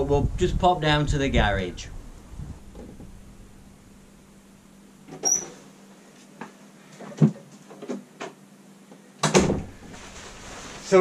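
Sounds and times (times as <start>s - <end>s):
door squeak: 5.1s - 5.6s
footsteps: 9.8s - 11.0s.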